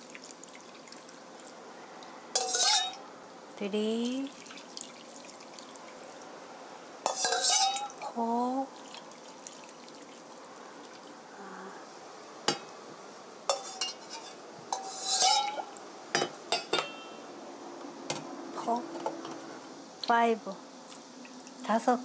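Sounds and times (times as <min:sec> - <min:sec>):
water pouring into a pot: 0:00.0 - 0:01.6, 0:04.3 - 0:06.4, 0:07.1 - 0:08.1, 0:08.7 - 0:11.2
mug scraping a metal bowl: 0:02.4 - 0:03.0, 0:07.1 - 0:07.9, 0:13.5 - 0:15.7.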